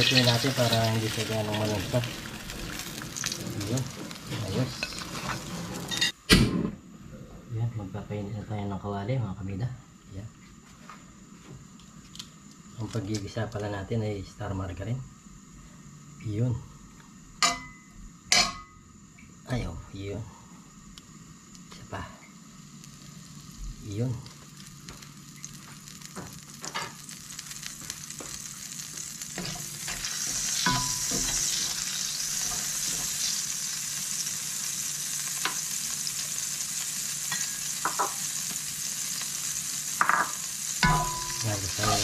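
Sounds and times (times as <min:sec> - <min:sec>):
margarine sizzling in wok: 0:00.0 - 0:06.2, 0:20.0 - 0:42.0.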